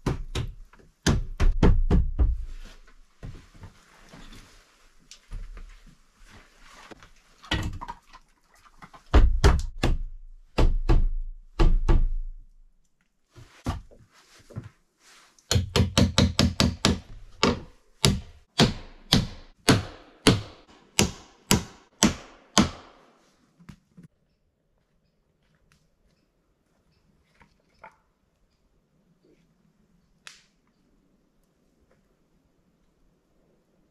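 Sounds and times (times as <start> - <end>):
hammer driving nails into wood: 15.5 - 23.1.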